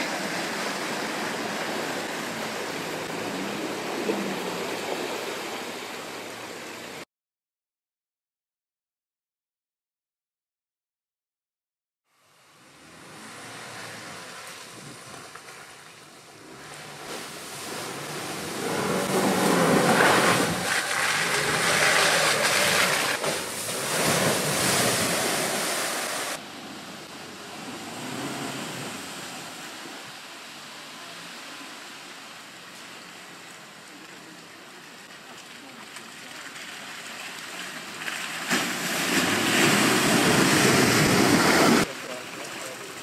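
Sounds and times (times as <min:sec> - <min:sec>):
car engine driving through mud: 0:00.0 - 0:07.0, 0:12.3 - 0:43.0
tyres churning and splashing: 0:00.0 - 0:07.0, 0:13.1 - 0:43.0
rushing wind-like noise: 0:17.2 - 0:30.4.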